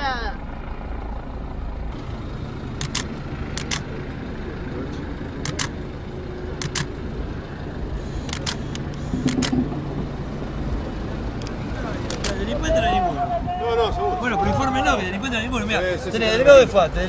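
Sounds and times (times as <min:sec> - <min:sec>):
vehicle rumble from inside cabin: 0:00.0 - 0:17.0
sharp double clicks: 0:02.8 - 0:03.9, 0:05.4 - 0:05.8, 0:06.6 - 0:06.9, 0:08.2 - 0:09.8, 0:11.4 - 0:12.4.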